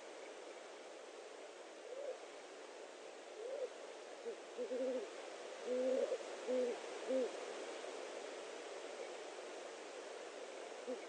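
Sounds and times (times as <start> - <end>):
steady hiss: 0.0 - 11.0
owl hooting: 1.8 - 2.2, 3.4 - 7.4.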